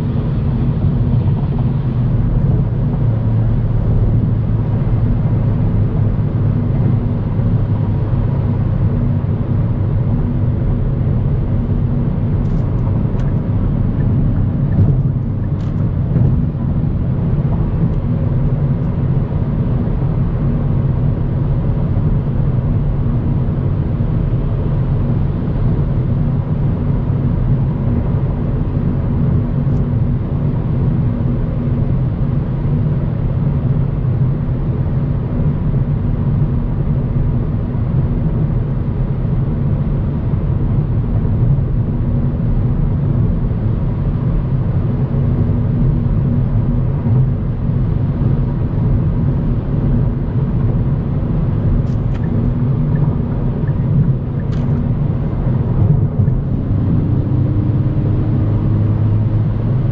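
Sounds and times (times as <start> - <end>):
car engine hum: 0.0 - 59.9
tyre noise on road: 45.6 - 59.8.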